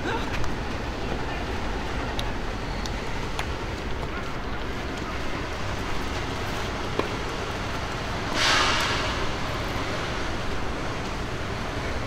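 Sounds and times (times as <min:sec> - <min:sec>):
brief hissing: 0:08.4 - 0:09.2.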